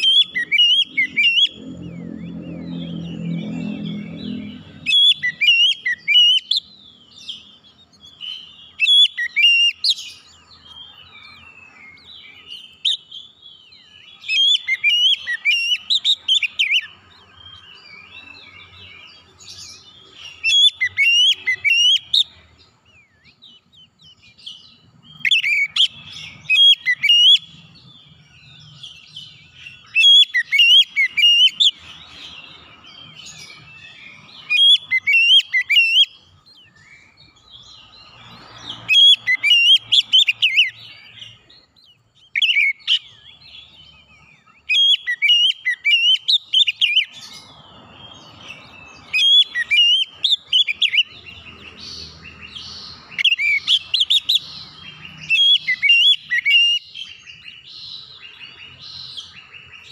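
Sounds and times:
bird singing whistled phrases: 0:00.0 - 0:10.3, 0:10.9 - 0:17.0, 0:20.2 - 0:22.4, 0:25.1 - 0:27.6, 0:28.5 - 0:31.8, 0:33.0 - 0:37.2, 0:38.6 - 0:43.5, 0:44.4 - 0:47.3, 0:48.4 - 0:51.7, 0:53.1 - 0:59.9.

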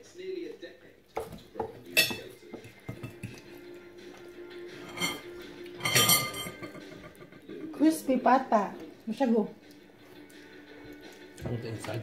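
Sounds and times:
plates and dishes clattering: 0:01.2 - 0:03.6, 0:04.7 - 0:07.8.

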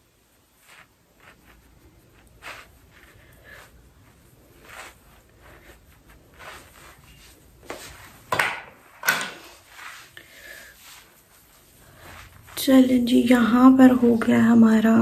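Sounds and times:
soft rustles: 0:00.0 - 0:15.0.

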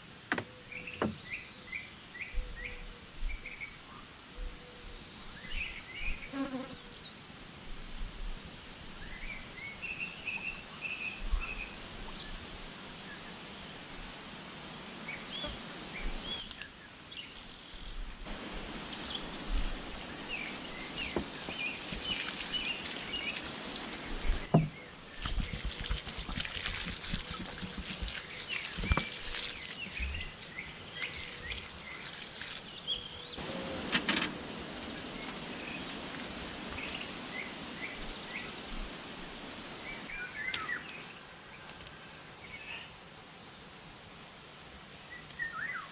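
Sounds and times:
outdoor background noise: 0:00.0 - 0:45.9
small birds chirping: 0:15.1 - 0:38.9, 0:39.8 - 0:43.0
hand trowel scraping soil: 0:20.2 - 0:24.5, 0:25.1 - 0:33.4.

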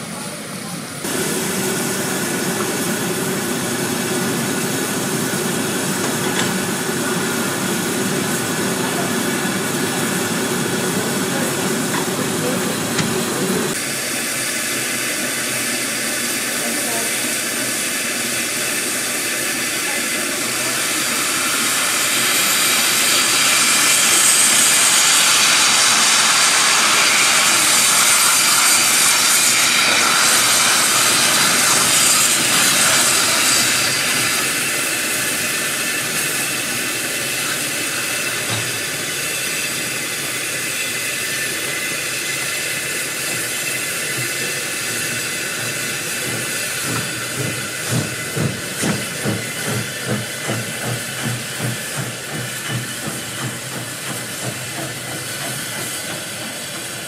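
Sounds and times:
steam locomotive hissing: 0:00.0 - 0:57.0.

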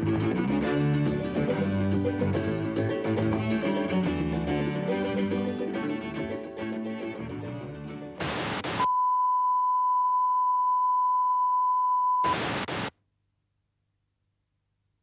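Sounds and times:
plucked-string music: 0:00.0 - 0:08.2
burst of static: 0:08.2 - 0:08.9, 0:12.2 - 0:12.9.

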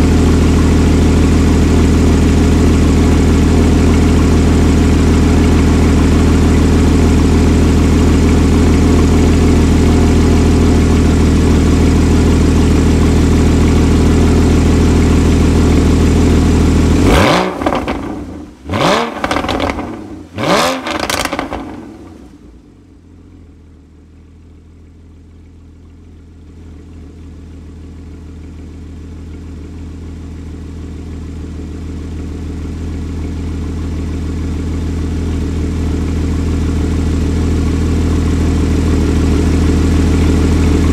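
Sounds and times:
car engine revving: 0:00.0 - 0:22.6, 0:38.3 - 0:40.9
car engine idling: 0:00.0 - 0:40.9.

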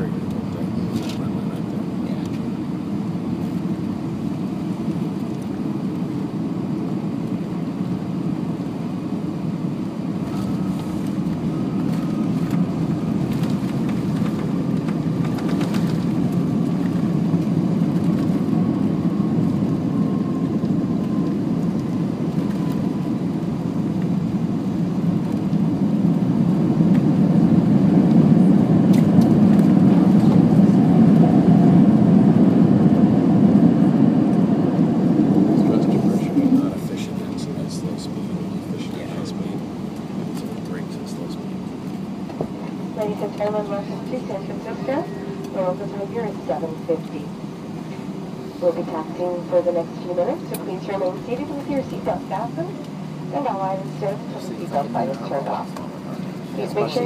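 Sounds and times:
airplane cabin rumble: 0:00.0 - 0:57.0.

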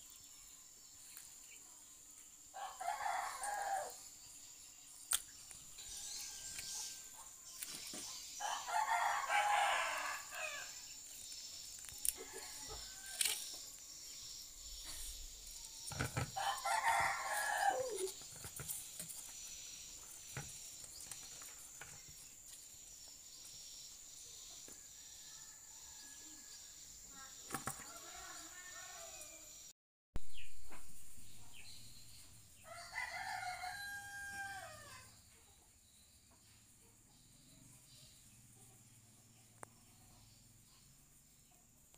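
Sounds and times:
rooster crowing: 0:02.6 - 0:04.0, 0:08.4 - 0:10.8, 0:12.1 - 0:13.5, 0:16.2 - 0:18.2, 0:32.6 - 0:35.1.

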